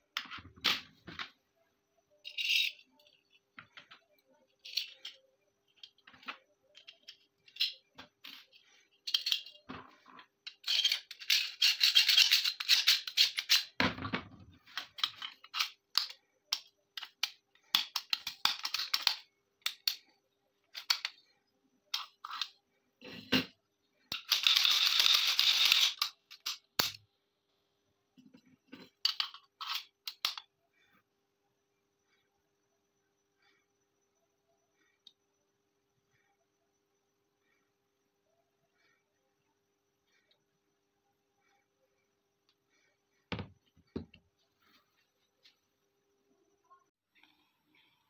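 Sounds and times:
metal parts clicking and rattling: 2.2 - 13.8, 14.6 - 20.1, 24.1 - 27.0, 28.7 - 30.5.

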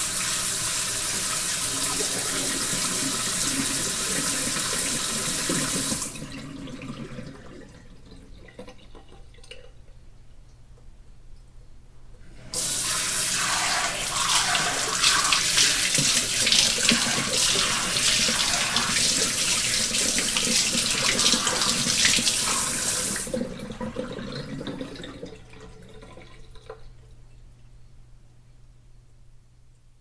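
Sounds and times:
water sprayer hissing jet: 12.5 - 23.3.

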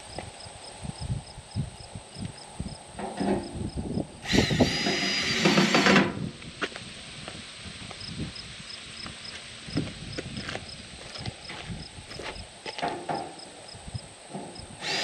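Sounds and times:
cordless drill whining: 4.2 - 6.2, 14.8 - 15.0.

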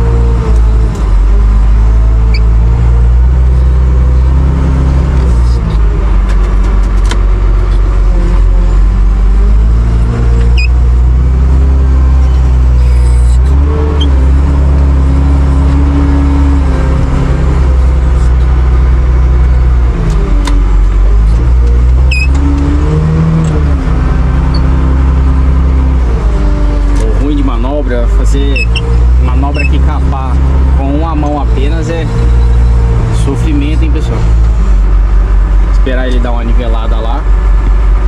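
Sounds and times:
loader engine running hard: 0.0 - 38.0
faint short squeaks: 12.2 - 14.2, 22.0 - 22.5, 28.5 - 29.8.

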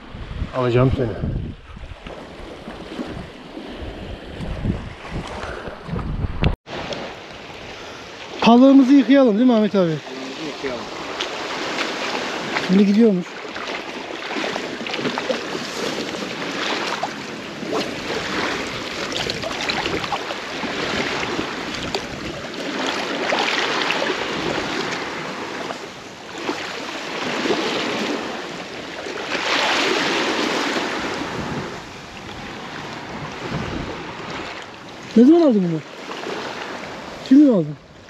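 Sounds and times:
seawater sloshing over pebbles: 11.2 - 25.7.

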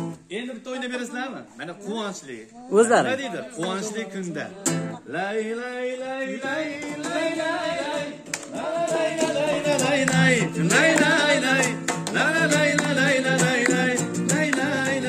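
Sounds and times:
instrumental accompaniment with beat: 6.5 - 15.0.

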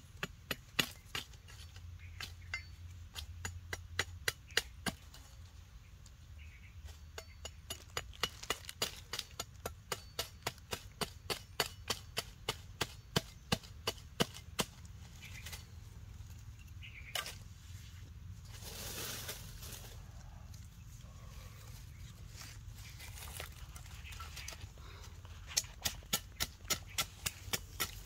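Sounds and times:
machete chopping wooden stick: 7.7 - 15.4, 25.5 - 28.0.

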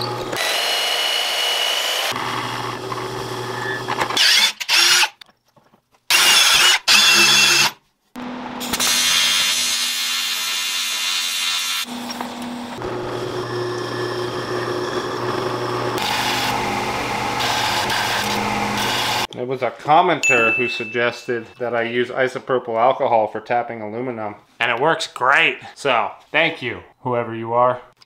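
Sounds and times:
drill press cutting metal: 0.0 - 5.2, 6.1 - 7.8, 8.6 - 19.3.

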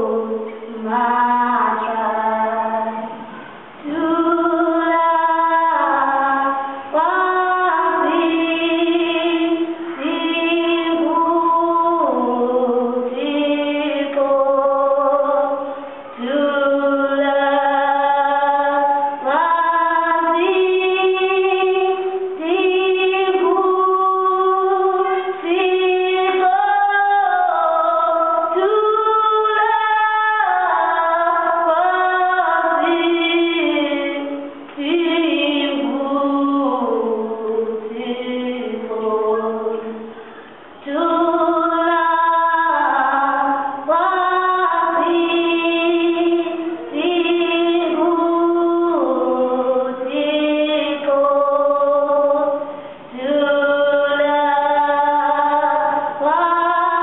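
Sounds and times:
women singing slow song: 0.0 - 57.0.

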